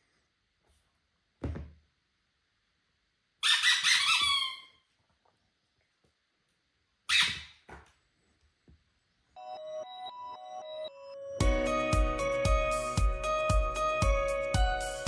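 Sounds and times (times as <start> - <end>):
squeaky dog toy squeaking: 3.4 - 4.8, 7.1 - 7.6.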